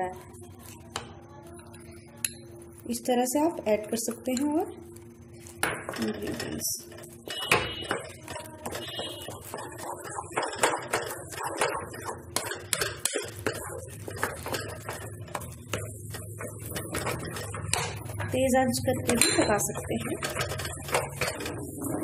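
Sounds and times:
spatula scraping and knocking pan: 0:05.4 - 0:22.0.

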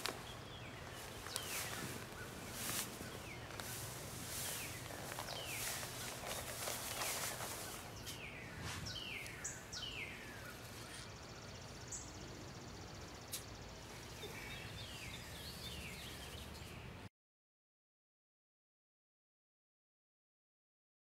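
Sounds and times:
outdoor background noise: 0:00.0 - 0:17.1
sand pouring out of a bag: 0:01.0 - 0:07.9.

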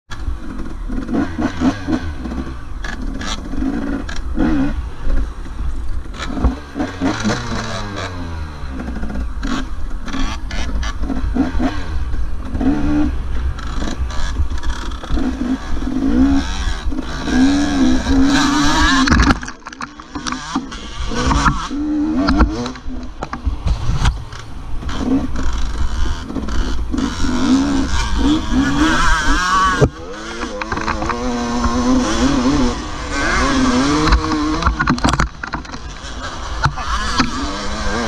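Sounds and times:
dirt bike engine revving: 0:00.1 - 0:38.0
bike knocks and rattles: 0:18.2 - 0:27.2, 0:33.4 - 0:37.4.

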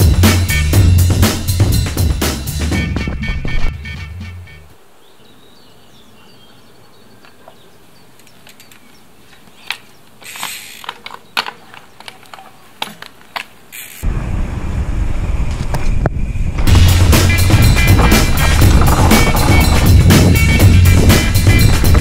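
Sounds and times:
mountain bike clicks and rattles: 0:08.2 - 0:14.1, 0:17.9 - 0:20.5.

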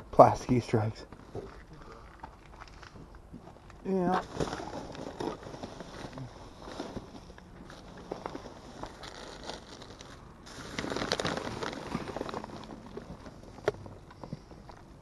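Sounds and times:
plastic bags rustling and crinkling: 0:01.2 - 0:15.0.

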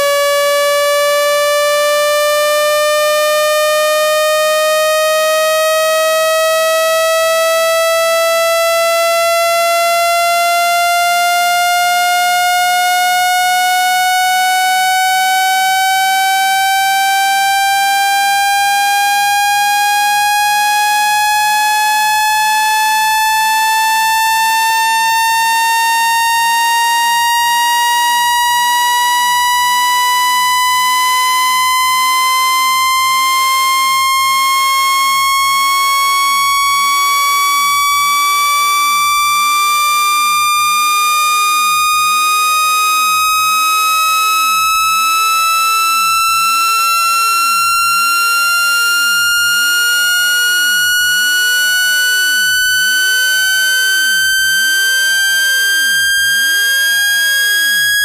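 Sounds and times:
electronic tone sliding upward: 0:40.5 - 0:58.0.

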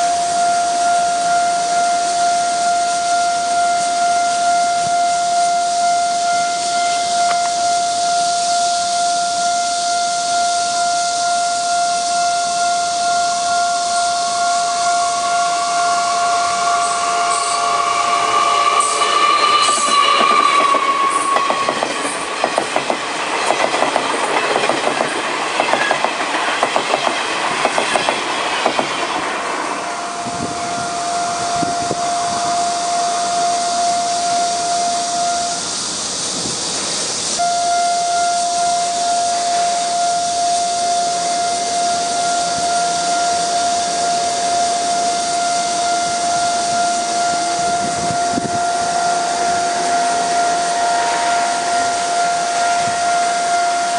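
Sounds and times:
high wheel squeal: 0:00.0 - 0:53.9
rolling hiss: 0:00.0 - 0:53.9
steady high whine: 0:00.0 - 0:53.9
train wheels clattering over joints: 0:18.7 - 0:29.5.

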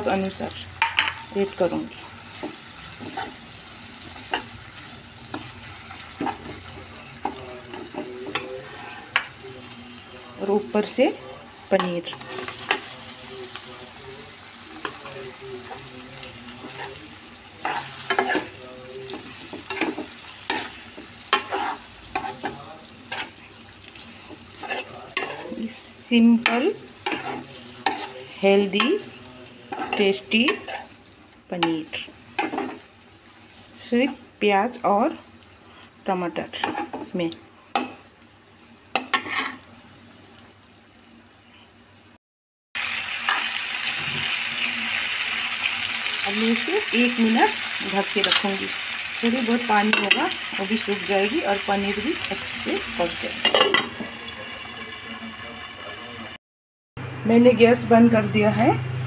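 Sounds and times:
light frying sizzle: 0:00.0 - 0:42.2, 0:42.8 - 0:56.4
spatula scraping a pan: 0:00.8 - 0:09.4, 0:14.8 - 0:25.8, 0:26.4 - 0:34.3, 0:36.5 - 0:37.1, 0:38.9 - 0:39.7.

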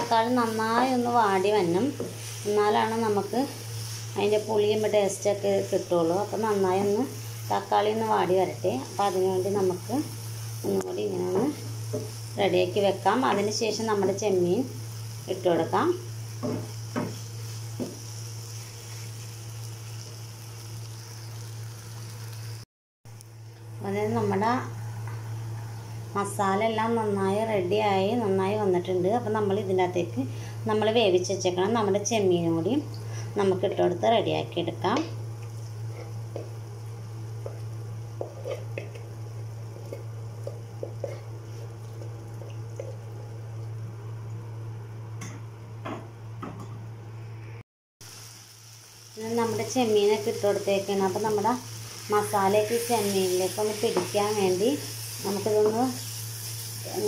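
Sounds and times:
wooden spatula working pan: 0:00.0 - 0:05.0, 0:37.4 - 0:43.1
food sizzling in a frying pan: 0:00.0 - 0:22.7, 0:24.0 - 0:44.8, 0:48.0 - 0:57.0.

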